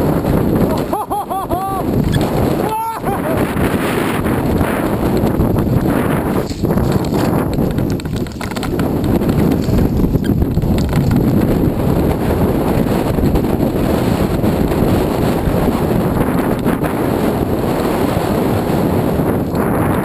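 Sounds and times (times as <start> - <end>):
bike rattles and clicks: 0.0 - 20.0
wind buffeting microphone: 0.0 - 20.0
tyres crunching over gravel: 4.2 - 12.1.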